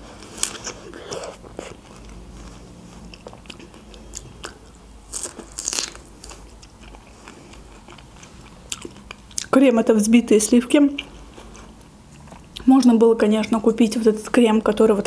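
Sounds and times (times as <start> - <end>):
wet chewing with mouth clicks: 0.3 - 9.5.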